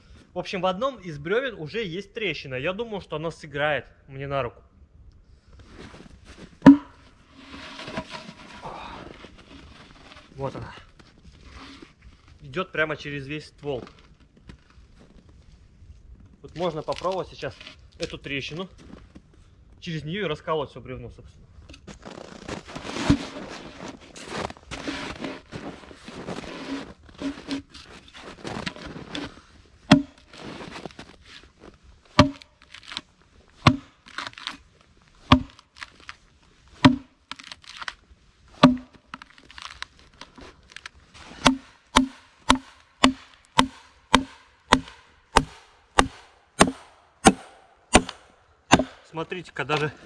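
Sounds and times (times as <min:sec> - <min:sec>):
axe striking log: 0:06.6 - 0:07.0, 0:29.9 - 0:30.4, 0:32.2 - 0:33.0, 0:33.6 - 0:34.6, 0:35.2 - 0:35.9, 0:36.8 - 0:37.6, 0:38.6 - 0:39.3, 0:41.3 - 0:49.1
handling rustle: 0:21.6 - 0:42.0.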